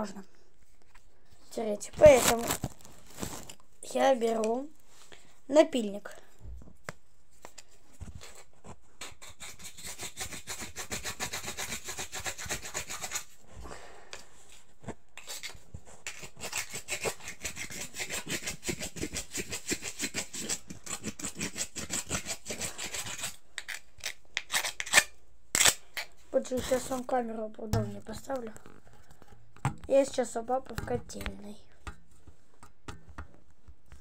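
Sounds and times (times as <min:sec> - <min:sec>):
metal file rasping on bone: 0:09.0 - 0:13.4, 0:15.2 - 0:25.8.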